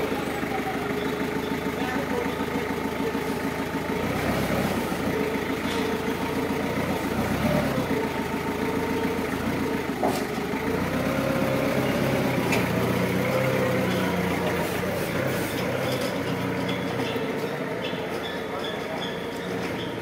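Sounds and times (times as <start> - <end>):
forklift engine running: 0.0 - 20.0.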